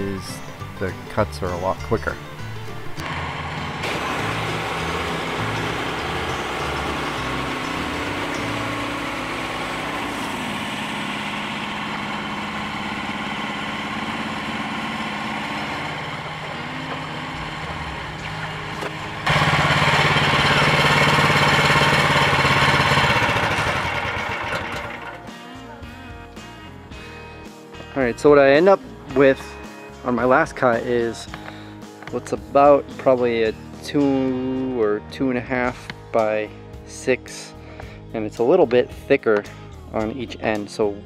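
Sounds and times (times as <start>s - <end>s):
bandsaw mill engine humming: 0.0s - 27.5s.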